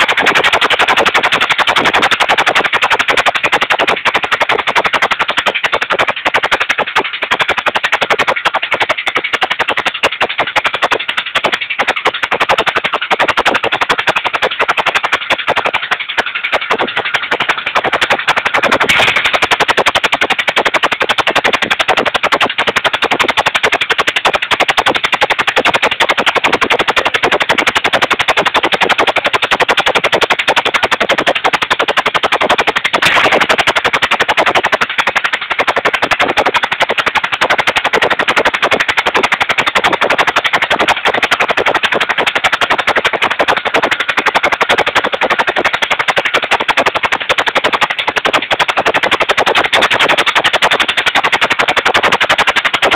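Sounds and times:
engine running with sharp exhaust beats: 0.0s - 52.9s.

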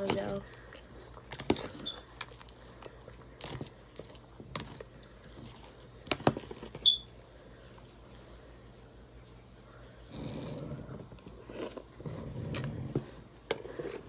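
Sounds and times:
person chewing crunchy cereal: 0.4s - 6.7s, 10.1s - 14.0s.

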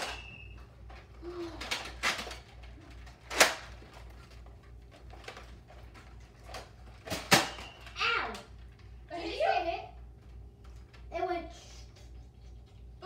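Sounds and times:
dart blaster pops: 7.1s - 7.8s.

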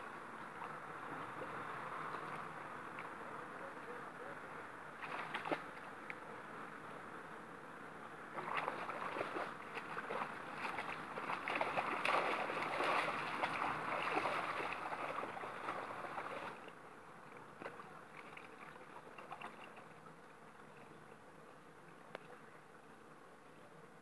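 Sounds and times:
water splashing in a river: 4.4s - 6.2s, 8.3s - 20.8s.

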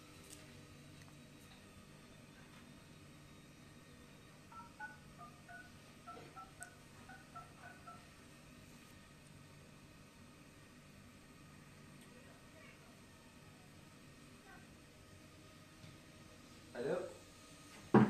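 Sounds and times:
phone keypad dialing tones: 4.5s - 8.1s.

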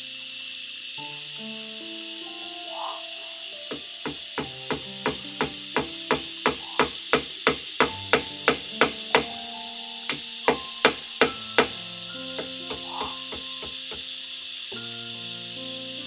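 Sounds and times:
hammer striking nails into wood: 3.7s - 9.4s, 10.1s - 11.8s, 12.4s - 14.0s.

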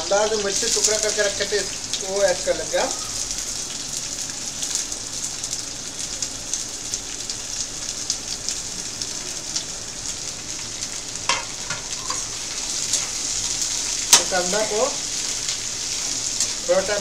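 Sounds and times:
onions sizzling in hot oil: 0.0s - 17.0s.

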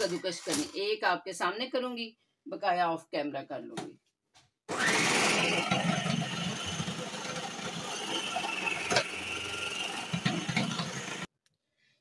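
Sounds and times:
food processor motor whine: 4.7s - 11.3s.

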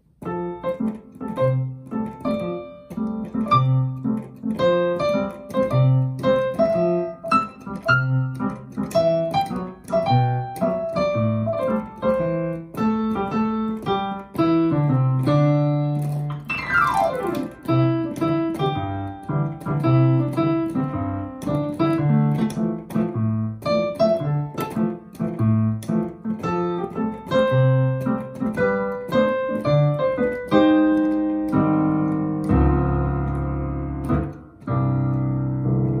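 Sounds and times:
reggae-style piano playing: 0.0s - 36.0s.

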